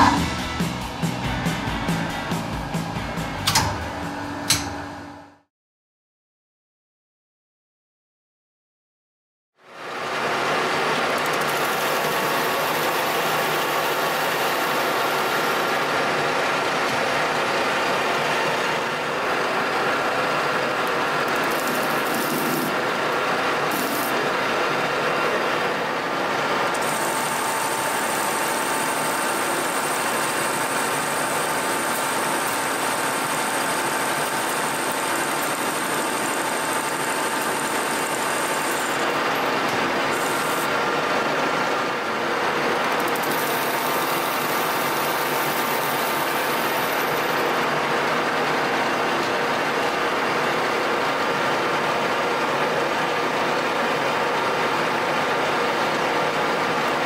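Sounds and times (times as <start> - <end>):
metal lathe cutting pipe: 0.0 - 0.6, 16.9 - 25.0, 26.6 - 41.0, 42.8 - 49.6
thin machine whine: 0.0 - 5.5, 10.2 - 51.6.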